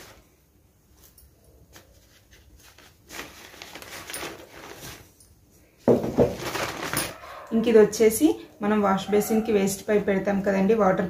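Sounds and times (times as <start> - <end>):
plastic packaging rustling: 0.0 - 7.3.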